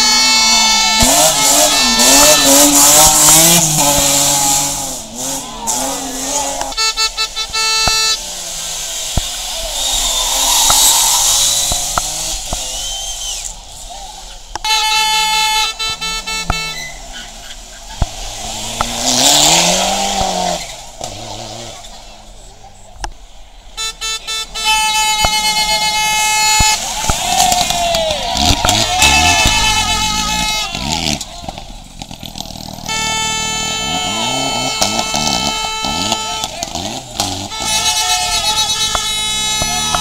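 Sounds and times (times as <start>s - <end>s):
horn blowing: 0.0s - 8.5s, 14.6s - 17.3s, 23.8s - 31.3s, 32.8s - 40.0s
rally car engines revving: 0.0s - 40.0s.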